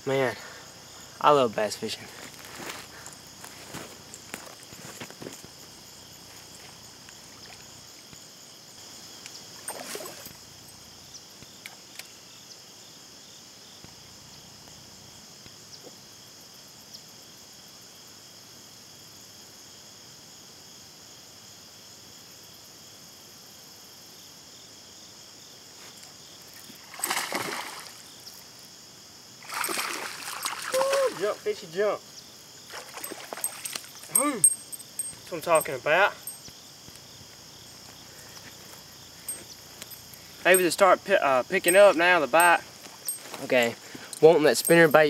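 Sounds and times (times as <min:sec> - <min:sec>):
crickets and insects chirring: 0:00.0 - 0:45.0
fish splashing at water surface: 0:26.8 - 0:28.1, 0:29.4 - 0:31.3, 0:32.7 - 0:34.1.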